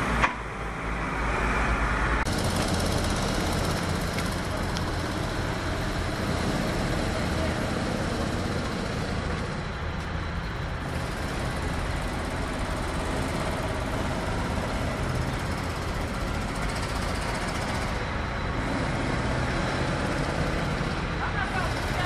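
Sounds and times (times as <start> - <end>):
diesel machinery rumbling: 0.0 - 22.0.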